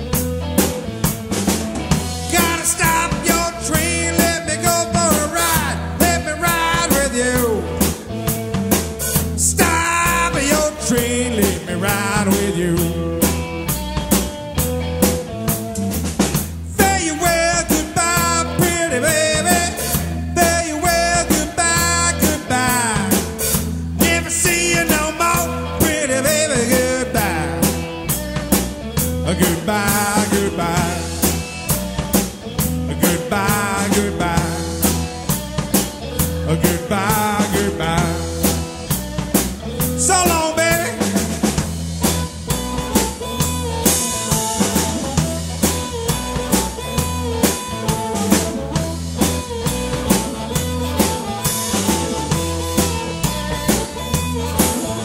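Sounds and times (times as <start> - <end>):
blues-rock band playing: 0.0 - 55.0
amplified harmonica solo: 11.9 - 55.0.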